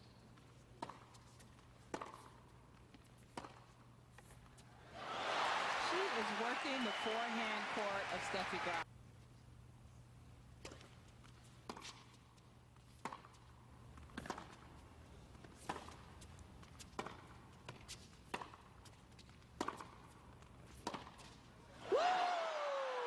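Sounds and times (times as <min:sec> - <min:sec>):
racket hitting tennis ball: 0:00.8 - 0:02.4, 0:03.2 - 0:03.7, 0:14.2 - 0:14.6, 0:15.6 - 0:18.7, 0:19.6 - 0:20.1, 0:20.7 - 0:21.4.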